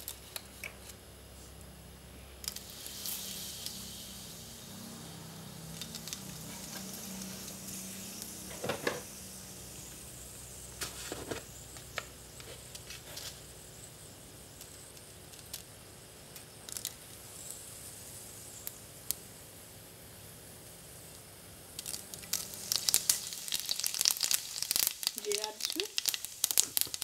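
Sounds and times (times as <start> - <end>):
leaves sizzling in hot oil: 2.2 - 27.0
oil popping and crackling: 2.4 - 13.4, 14.5 - 17.6, 21.7 - 27.0.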